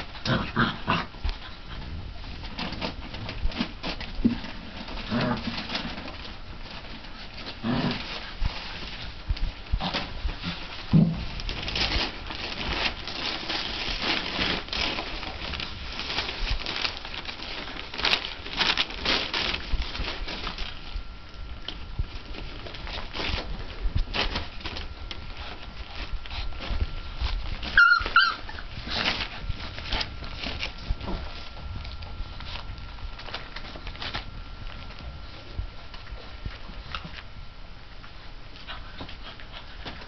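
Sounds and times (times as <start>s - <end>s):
newspaper crumpling and tearing: 11.4s - 37.2s
puppy yelp: 27.7s - 28.7s.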